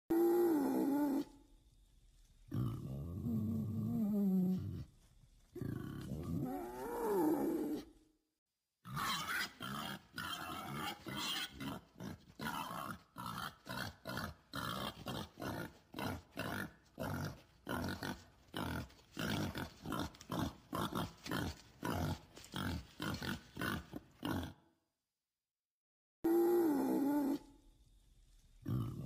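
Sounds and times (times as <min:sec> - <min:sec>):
warthog grunting: 0:08.9 - 0:24.6.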